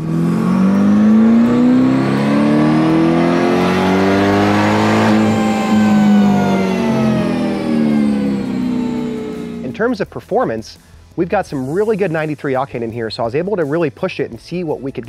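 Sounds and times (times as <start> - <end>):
car engine revving: 0.0 - 9.9
supercharger whine: 0.0 - 10.0.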